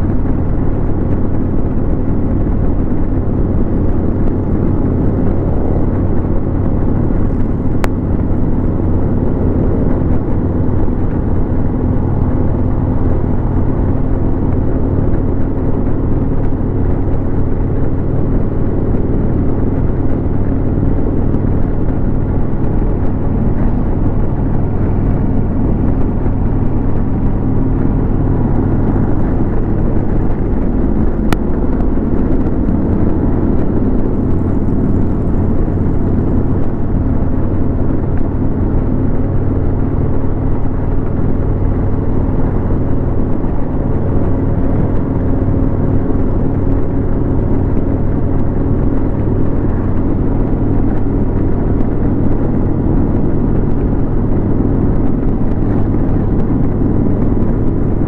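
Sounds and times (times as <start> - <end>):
motorcycle engine cruising: 0.0 - 58.0
road noise: 0.0 - 58.0.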